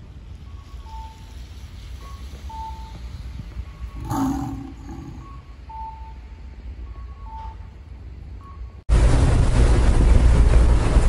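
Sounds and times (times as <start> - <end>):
steady low rumble: 2.8 - 7.2, 7.9 - 11.0
dinosaur roar from loudspeaker: 4.0 - 5.3.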